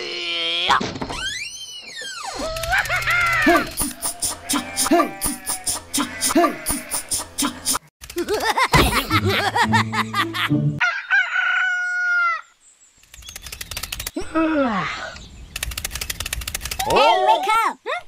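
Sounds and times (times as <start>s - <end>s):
music: 9.2s - 10.8s
rooster crowing: 10.8s - 12.6s.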